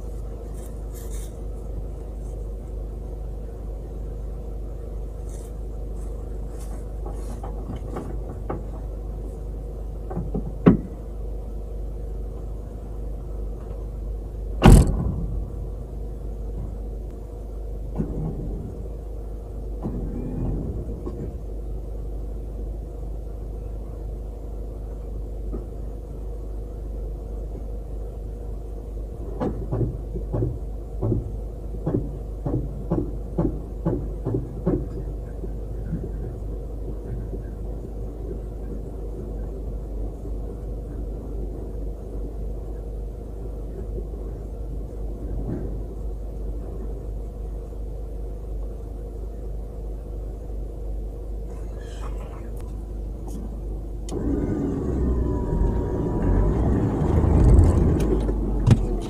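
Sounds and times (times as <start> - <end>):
vehicle engine idling: 0.0 - 59.0
loud knock: 14.6 - 15.4.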